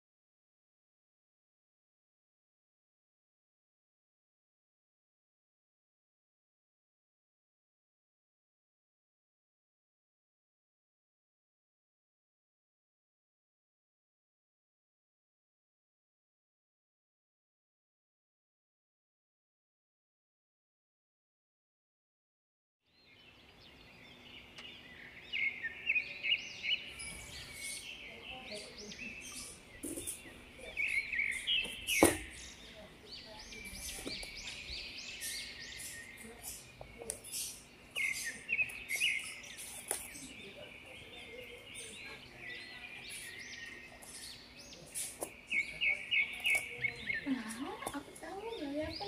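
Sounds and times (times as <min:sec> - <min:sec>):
small birds chirping: 0:22.9 - 0:49.0
sharp knock: 0:31.6 - 0:32.4.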